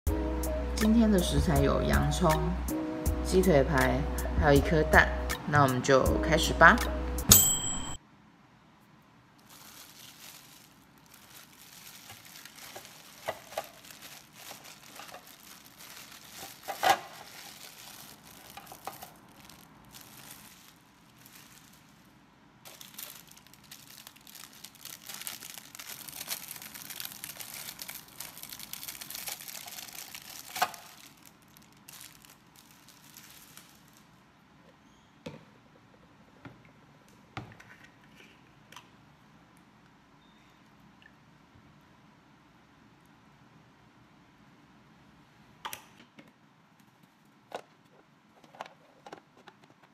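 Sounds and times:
plastic bag crinkling: 9.4s - 34.2s.

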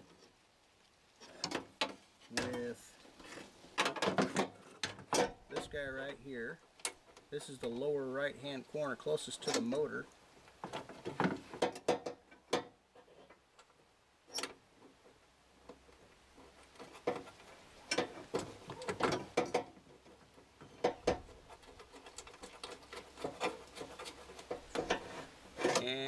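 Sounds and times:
metallic clicks and knocks: 3.8s - 6.1s, 9.4s - 9.8s, 10.5s - 15.0s, 15.7s - 25.9s.

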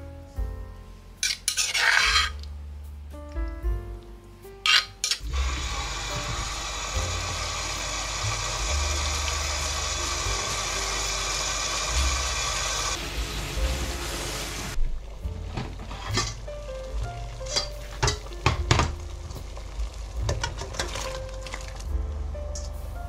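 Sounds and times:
tap water running into colander: 5.3s - 21.8s.

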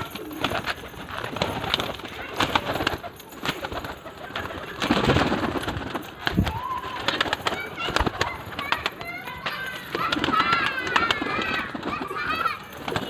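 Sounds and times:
pigeons cooing: 0.0s - 8.4s.

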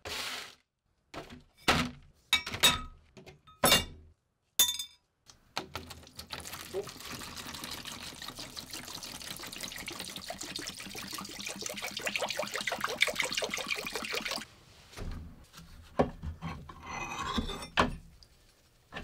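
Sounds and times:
liquid pouring and gurgling: 5.8s - 14.5s.

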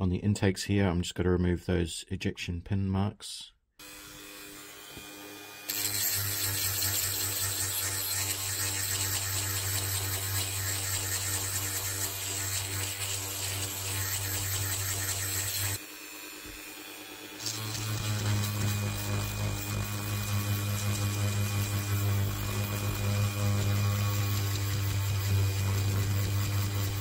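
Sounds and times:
rotary tool grinding plastic: 5.7s - 15.8s, 17.3s - 27.0s.

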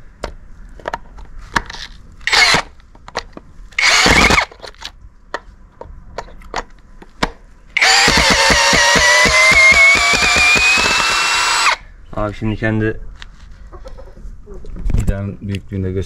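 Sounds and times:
cordless drill motor: 2.2s - 2.6s, 3.8s - 4.6s, 7.8s - 11.8s
sharp clicks: 3.8s - 4.5s, 7.8s - 11.8s.

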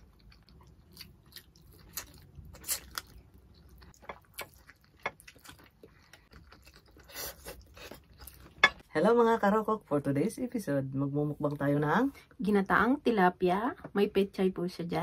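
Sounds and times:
chewing and biting food: 0.0s - 8.6s.

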